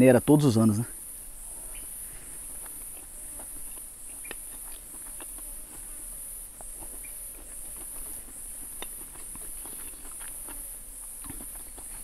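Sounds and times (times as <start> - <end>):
insect chorus shrilling: 0.0 - 5.2
small clicks and ticks: 6.6 - 10.6.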